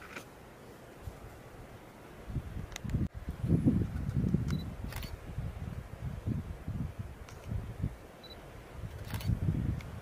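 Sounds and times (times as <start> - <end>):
wind buffeting microphone: 2.2 - 10.0.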